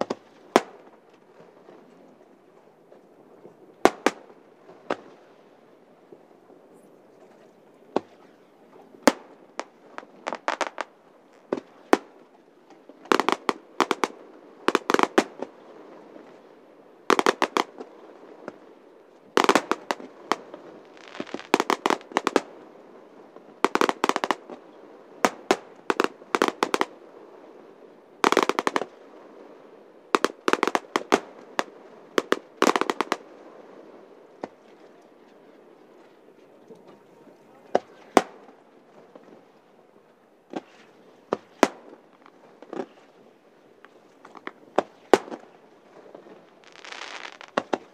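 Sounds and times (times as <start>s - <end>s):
fireworks bangs and crackling: 0.0s - 1.0s, 3.8s - 5.1s, 9.0s - 12.3s, 13.0s - 15.6s, 17.1s - 18.7s, 19.3s - 22.6s, 23.4s - 26.9s, 28.2s - 29.5s, 30.1s - 34.6s, 37.7s - 38.6s, 40.5s - 43.0s, 43.8s - 47.9s.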